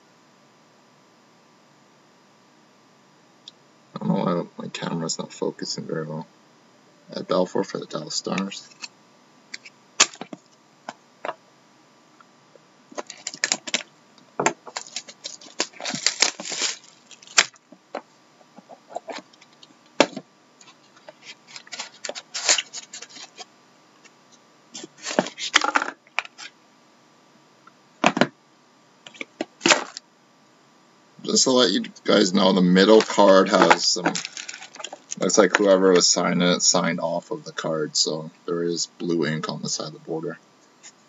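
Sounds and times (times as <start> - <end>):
wrapper crinkling: 13.0 - 13.9, 14.6 - 17.7, 21.2 - 23.4, 32.9 - 35.5.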